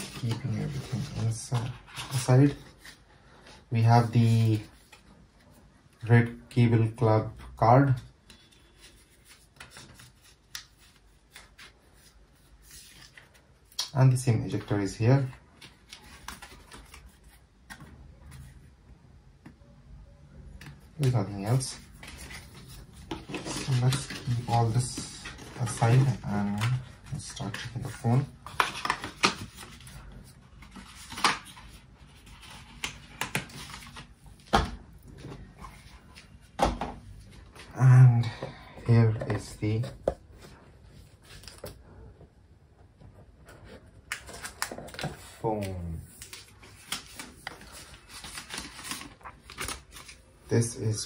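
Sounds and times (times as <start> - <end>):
paper rustling and scraping: 0.0 - 5.6, 20.6 - 34.5, 43.4 - 50.2.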